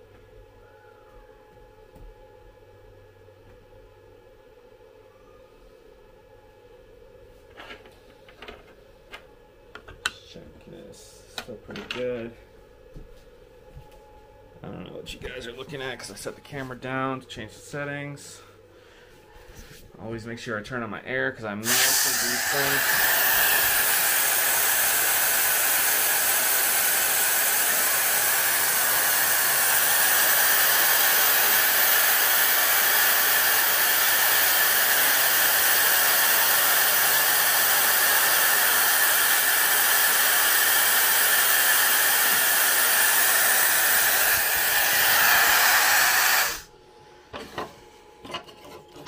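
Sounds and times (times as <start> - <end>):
steady hiss of air: 21.4 - 46.7.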